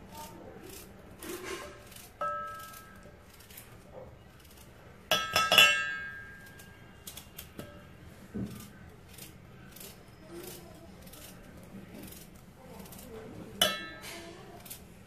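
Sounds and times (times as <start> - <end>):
metallic clinks: 2.0 - 3.1, 4.4 - 7.8.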